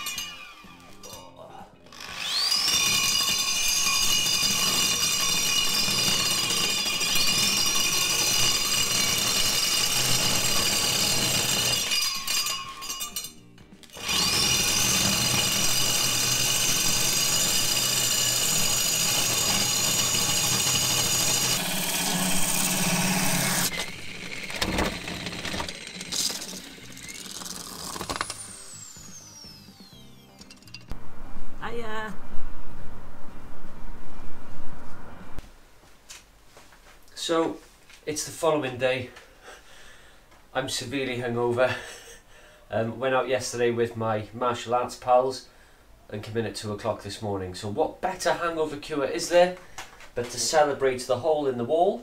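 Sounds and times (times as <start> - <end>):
core drill cutting into wall: 1.9 - 13.0, 13.9 - 30.4.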